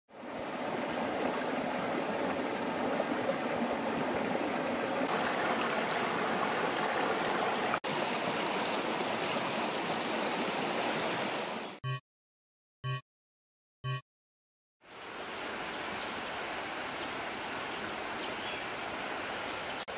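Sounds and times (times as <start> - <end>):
river water flowing over stones: 0.2 - 11.8.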